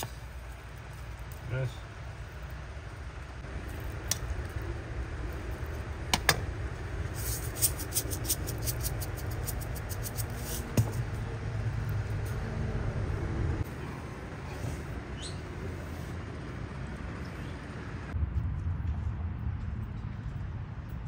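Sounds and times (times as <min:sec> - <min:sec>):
low rumble: 0:16.2 - 0:21.0.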